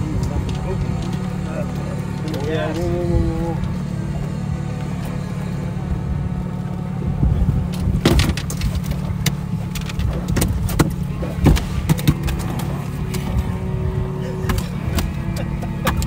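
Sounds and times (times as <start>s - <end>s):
boat motor running: 0.0s - 16.0s
knocks and metallic clatter: 7.7s - 13.6s.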